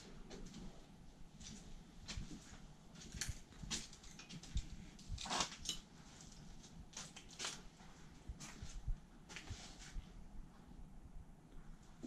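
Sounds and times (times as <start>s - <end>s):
scuffs and rustles: 1.4s - 10.2s.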